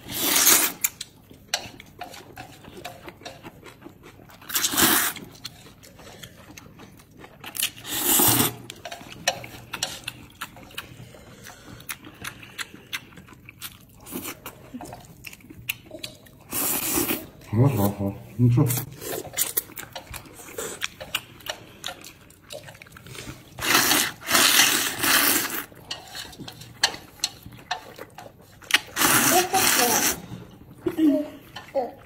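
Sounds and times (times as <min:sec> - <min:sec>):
person slurping noodles: 0:00.0 - 0:00.9, 0:04.4 - 0:05.4, 0:07.8 - 0:08.8, 0:16.4 - 0:17.5, 0:23.0 - 0:26.7, 0:28.0 - 0:30.6
wet chewing: 0:00.0 - 0:17.5, 0:18.6 - 0:32.0.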